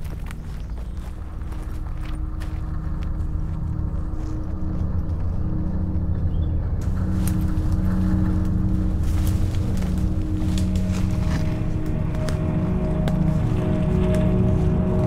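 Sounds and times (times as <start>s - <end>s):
branches and leaves rustling: 0.0s - 15.0s
low droning hum: 0.0s - 15.0s
twigs cracking: 0.0s - 15.0s.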